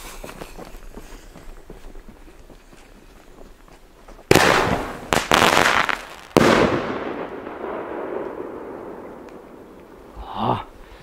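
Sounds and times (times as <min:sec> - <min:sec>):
firework bangs: 0:04.3 - 0:10.2.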